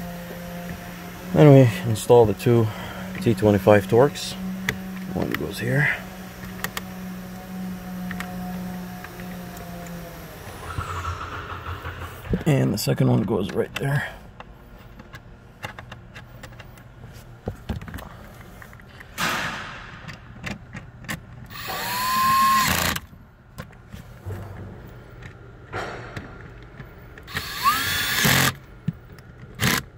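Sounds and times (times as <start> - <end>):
cordless drill motor whine: 21.5 - 23.0, 27.3 - 28.6.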